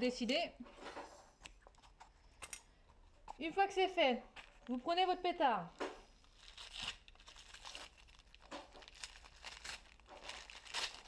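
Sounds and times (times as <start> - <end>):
paper packaging crinkling: 6.1 - 11.0.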